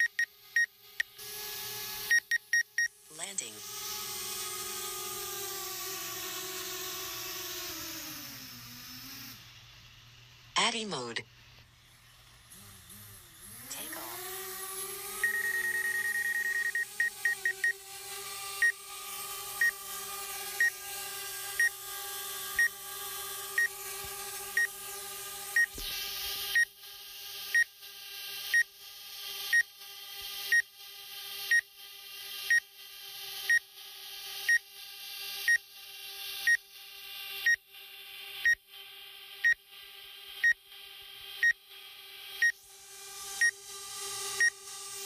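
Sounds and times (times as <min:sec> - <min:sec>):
electronic warning beeps: 0:15.2 - 0:17.8, 0:41.4 - 0:41.6.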